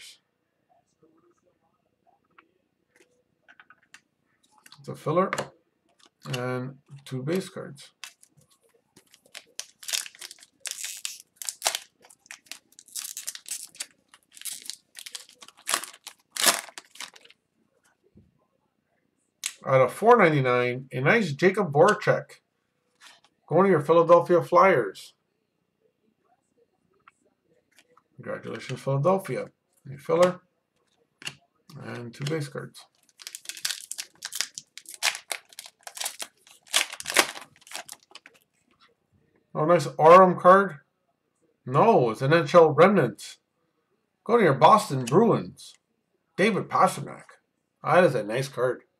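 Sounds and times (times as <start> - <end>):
foil wrapper crinkling: 9.0 - 17.3, 32.9 - 38.4.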